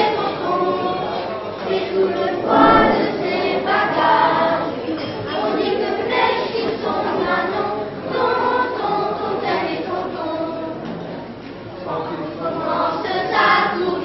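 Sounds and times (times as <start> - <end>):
children's choir singing: 0.0 - 10.8, 12.3 - 14.0.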